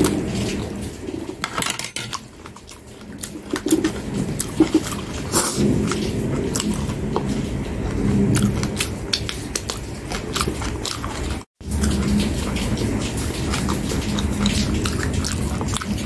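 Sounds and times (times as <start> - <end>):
person chewing food: 2.1 - 16.0
wet mouth clicks: 3.2 - 16.0.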